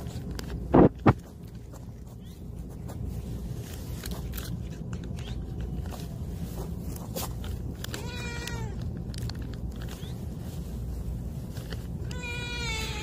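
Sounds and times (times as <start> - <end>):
steady low rumble: 0.0 - 13.0
cats meowing: 7.8 - 9.0, 12.0 - 13.0.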